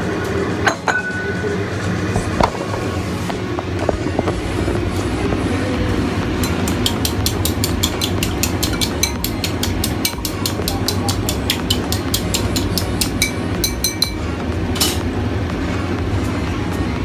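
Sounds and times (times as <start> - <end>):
steady low hum: 0.0 - 17.0
chopsticks beating eggs in bowl: 6.4 - 14.0.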